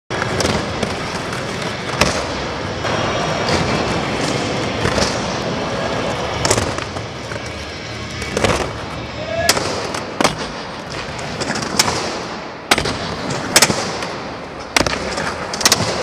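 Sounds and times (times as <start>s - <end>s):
skateboard wheels rolling on concrete: 0.1s - 16.0s.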